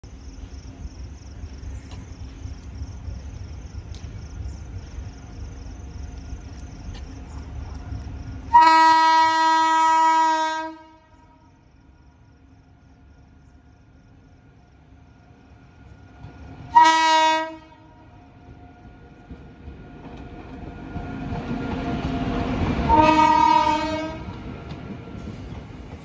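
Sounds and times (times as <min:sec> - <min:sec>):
insects chirping: 0:00.0 - 0:26.0
train horn blast: 0:08.5 - 0:11.5, 0:16.7 - 0:18.0, 0:22.9 - 0:24.3.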